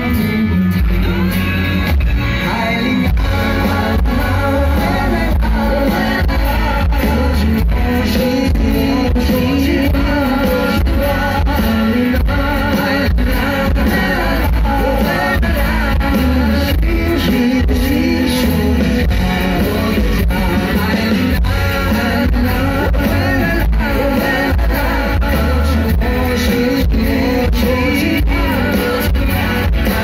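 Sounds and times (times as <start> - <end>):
live band music: 0.0 - 30.0
man singing: 0.0 - 30.0
steady drum beat: 0.0 - 30.0.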